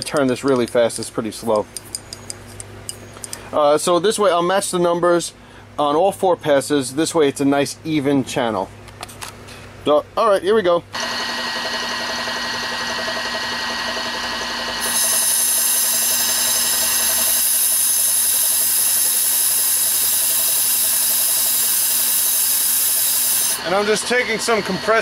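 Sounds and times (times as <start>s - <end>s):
milling machine whine: 11.0s - 25.0s
air blow gun hissing: 14.8s - 25.0s.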